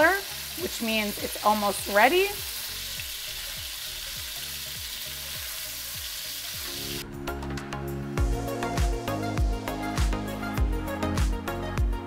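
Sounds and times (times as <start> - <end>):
sausage sizzling in a pan: 0.0 - 7.0
background music with beat: 2.4 - 12.0.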